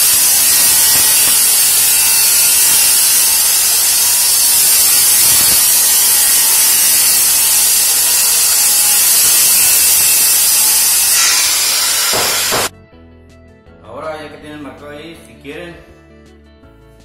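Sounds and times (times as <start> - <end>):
electric jigsaw cutting wood: 0.0 - 12.7.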